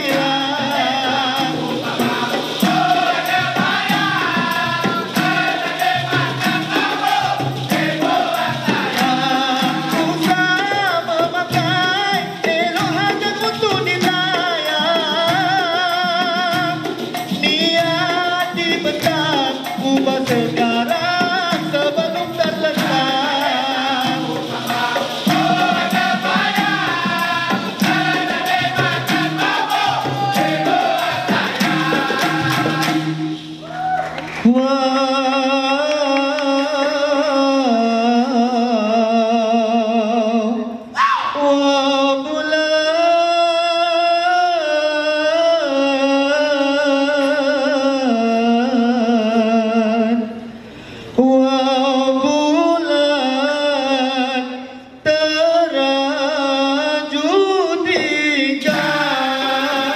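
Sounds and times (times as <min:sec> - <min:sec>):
voices singing a melody: 0:00.0 - 0:11.3, 0:19.4 - 0:42.7, 0:51.2 - 0:59.9
fast percussion and rattles: 0:00.0 - 0:36.9, 0:57.8 - 0:59.9.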